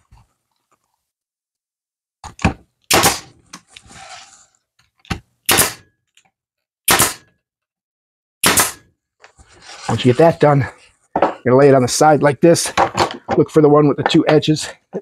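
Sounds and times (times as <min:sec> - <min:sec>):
pneumatic nailer firing: 0:02.9 - 0:03.4, 0:05.4 - 0:05.9, 0:06.9 - 0:07.3, 0:08.4 - 0:08.9.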